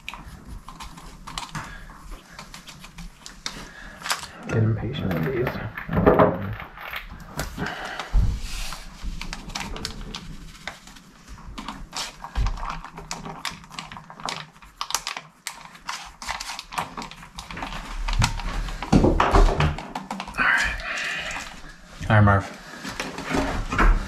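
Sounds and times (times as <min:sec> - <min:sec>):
foil packets crinkling: 0:00.0 - 0:19.0.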